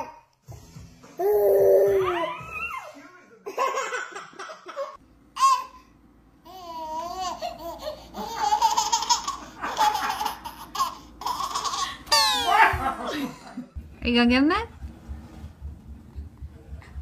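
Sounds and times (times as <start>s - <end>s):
baby laughing: 3.5s - 5.8s, 6.5s - 13.2s.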